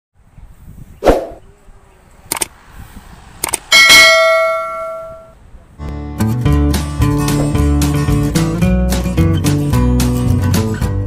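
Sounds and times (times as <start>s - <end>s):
ringing metal clang: 3.7s - 5.4s.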